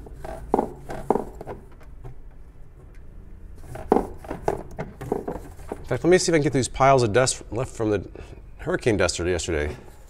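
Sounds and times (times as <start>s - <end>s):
glove rubbing blind slats: 0.0s - 6.6s.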